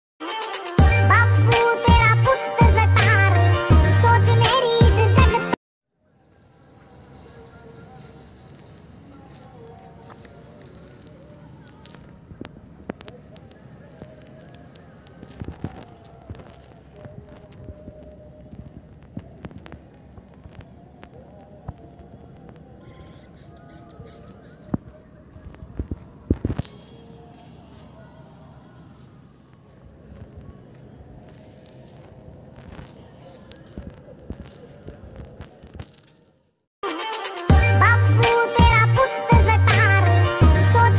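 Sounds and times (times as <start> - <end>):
crickets chirping: 5.9 - 36.7
insect drone: 5.9 - 36.7.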